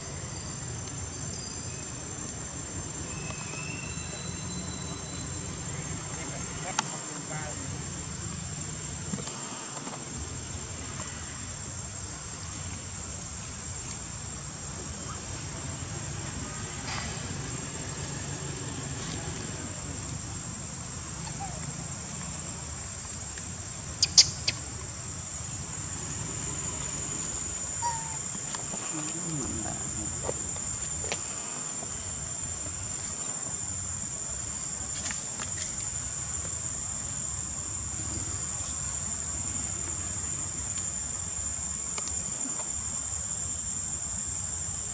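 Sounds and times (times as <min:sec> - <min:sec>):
high-pitched insect drone: 0:00.0 - 0:08.7.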